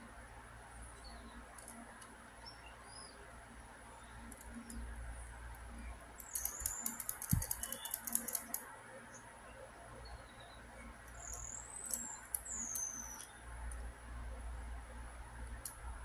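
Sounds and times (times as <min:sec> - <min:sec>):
plastic parts clicking and rattling: 0:06.2 - 0:08.6.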